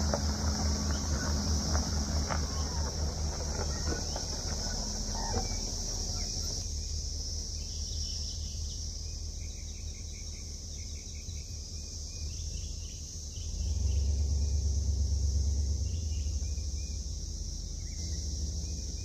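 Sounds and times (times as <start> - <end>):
engine rumbling: 0.0 - 19.0
high-pitched insect chorus: 0.0 - 19.0
faint bird chirps: 0.4 - 14.7.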